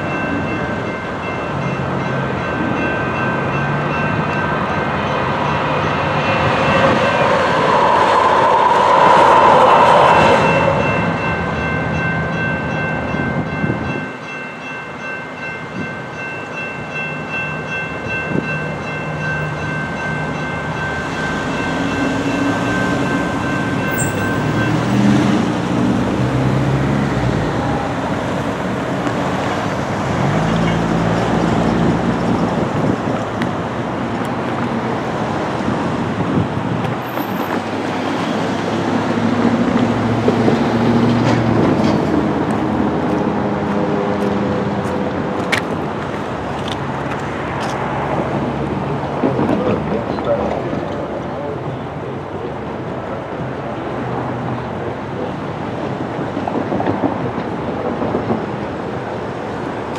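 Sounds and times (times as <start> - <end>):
crossing bells ringing: 0.0 - 36.4
train rumble: 0.0 - 59.9
car engines accelerating: 21.7 - 33.0.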